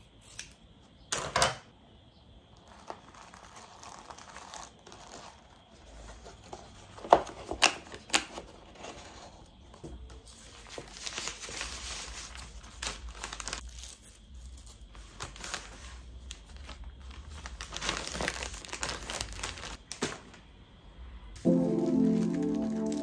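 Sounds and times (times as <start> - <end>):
paper mailer crinkling: 10.4 - 13.8, 15.1 - 20.1.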